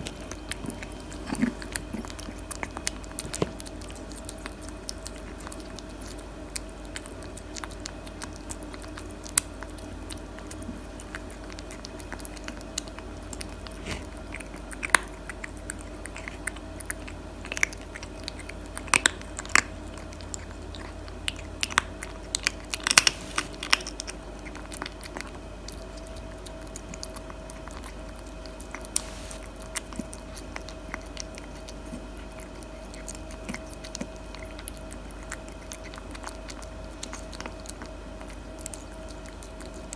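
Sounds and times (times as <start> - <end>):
cat crunching and chewing food: 0.0 - 39.9
faint steady hum: 0.0 - 39.9.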